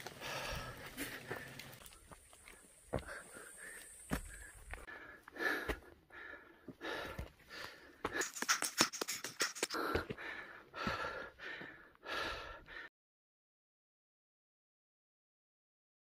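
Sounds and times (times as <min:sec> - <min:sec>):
person panting: 0:00.0 - 0:01.8, 0:02.9 - 0:12.9
footsteps on dry leaves and stones: 0:00.0 - 0:05.9, 0:06.8 - 0:11.1.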